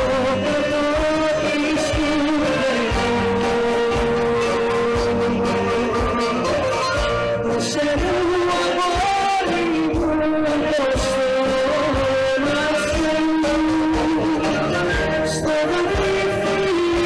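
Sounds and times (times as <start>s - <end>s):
wind band melody: 0.0s - 7.7s, 11.7s - 16.8s.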